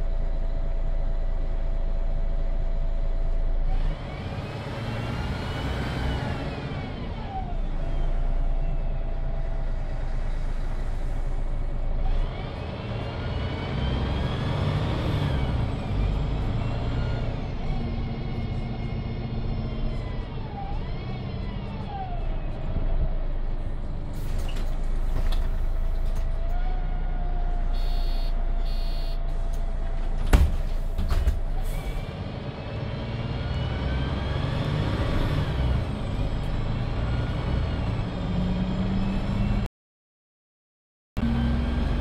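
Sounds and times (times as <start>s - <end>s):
bus engine and gearbox whine: 0.0s - 39.7s, 41.2s - 42.0s
short beeps: 27.8s - 29.2s
doors shutting knock: 30.2s - 31.5s.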